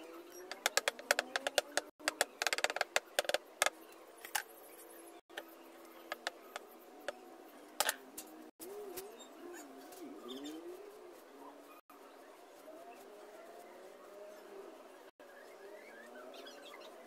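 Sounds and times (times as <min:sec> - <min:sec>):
paint clicks and taps on canvas: 0:00.5 - 0:03.7
pigeon cooing: 0:08.6 - 0:11.8.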